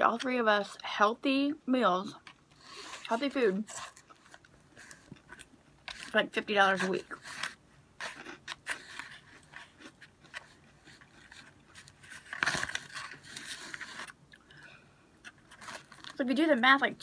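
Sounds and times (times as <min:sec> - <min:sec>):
crunchy chewing: 0:06.8 - 0:14.5.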